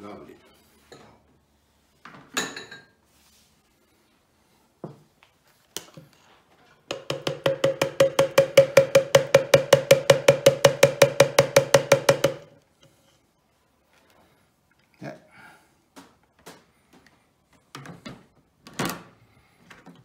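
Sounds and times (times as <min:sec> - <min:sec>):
hollow plastic knocks: 0:06.9 - 0:12.5.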